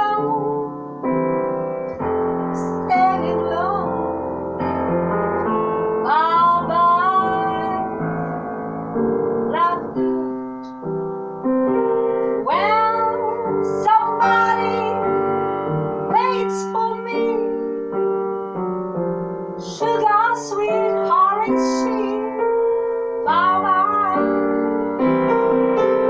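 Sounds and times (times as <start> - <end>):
woman singing: 0.0 - 0.8, 2.6 - 4.9, 6.0 - 8.1, 9.5 - 10.6, 12.4 - 15.4, 16.1 - 17.8, 19.6 - 22.4, 23.2 - 24.7
grand piano chords: 0.0 - 26.0.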